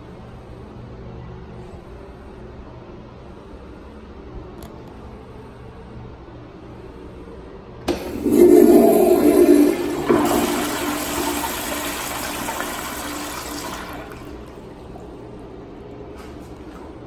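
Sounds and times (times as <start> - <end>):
toilet flushing: 7.8 - 15.1.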